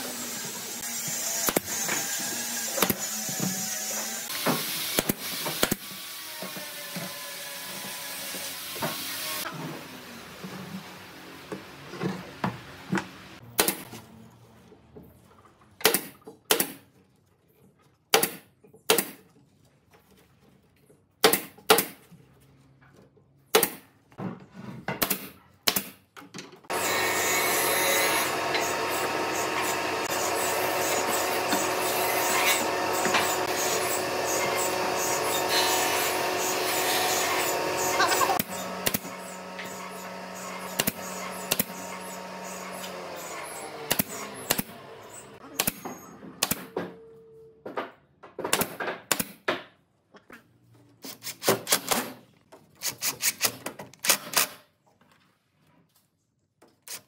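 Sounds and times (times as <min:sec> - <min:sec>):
nail gun snaps: 0:25.0 - 0:26.0, 0:48.5 - 0:49.5, 0:51.2 - 0:52.2, 0:52.8 - 0:54.6
dense machine noise: 0:26.7 - 0:45.4.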